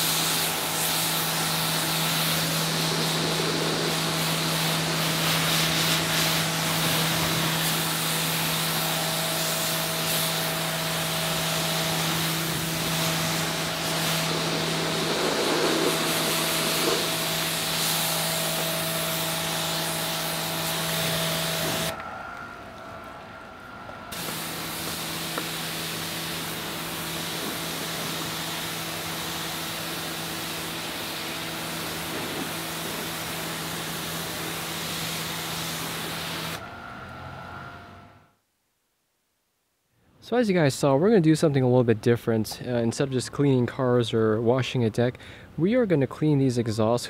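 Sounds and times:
water jet hissing on car: 0.0 - 21.9, 24.1 - 36.6
pressure washer motor hum: 0.0 - 37.5.

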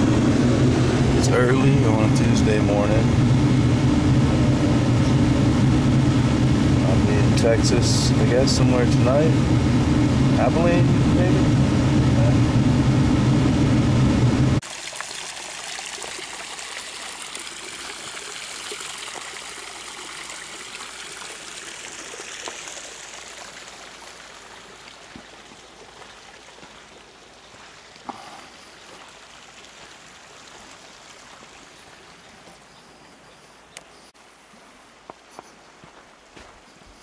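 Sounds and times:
water trickling over rocks: 14.6 - 32.6.

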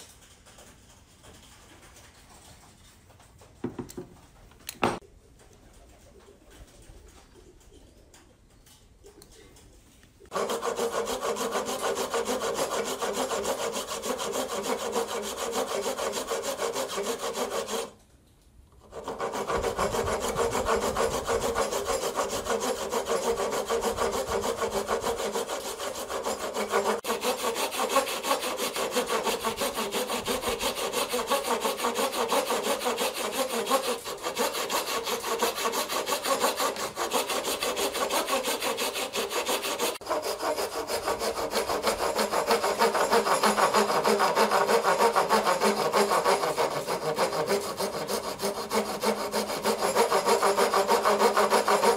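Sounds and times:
handsaw cutting wood: 10.3 - 18.0, 18.8 - 51.9.

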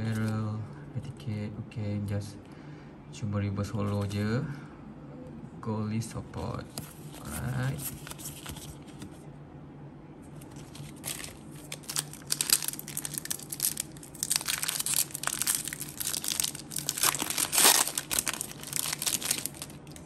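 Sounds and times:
foil wrapper crinkling and tearing: 10.4 - 20.0.

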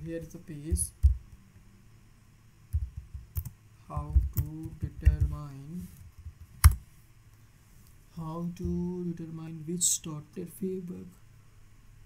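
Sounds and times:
typing on a computer keyboard: 2.7 - 5.4, 6.2 - 6.8.

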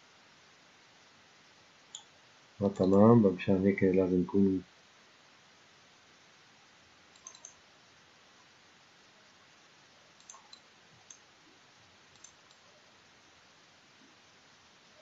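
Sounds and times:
steady low hiss: 0.0 - 15.0
computer mouse clicks: 1.9 - 3.0, 7.1 - 7.6, 10.2 - 11.3, 12.1 - 12.6.

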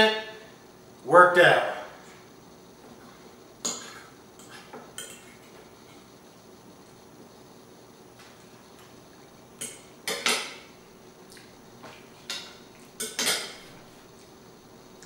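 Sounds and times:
fork clinking and scraping plate: 12.2 - 13.6.

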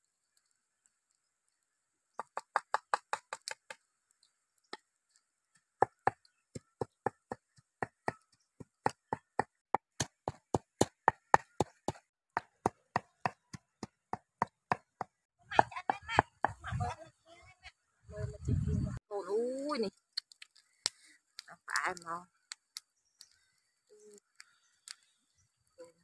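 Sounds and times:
pestle pounding in clay mortar: 5.8 - 16.6.

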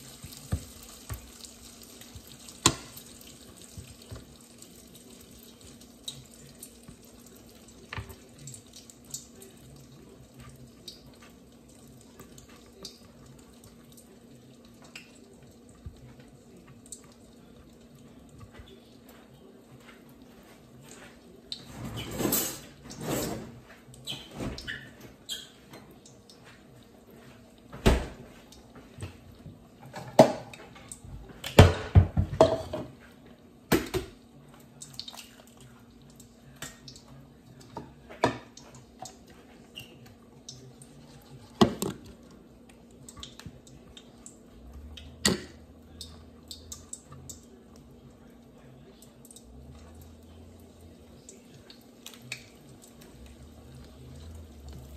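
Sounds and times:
dishes and utensils clattering: 21.6 - 25.0, 31.5 - 33.0.

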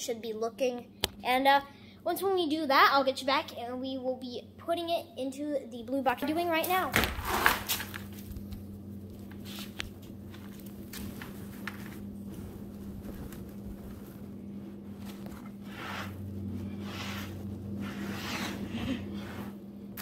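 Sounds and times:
steady low hum: 0.0 - 20.0
fabric bag rustling: 10.5 - 16.8.

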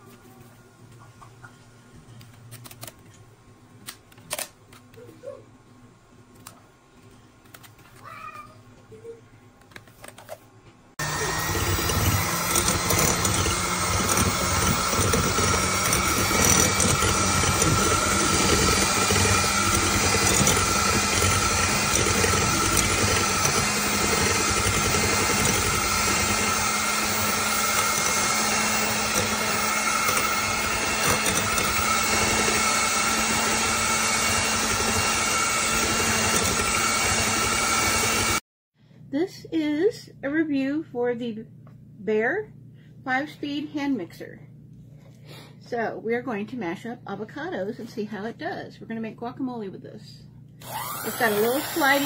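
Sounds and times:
electric hand mixer whirring: 11.0 - 38.4, 50.6 - 52.0.

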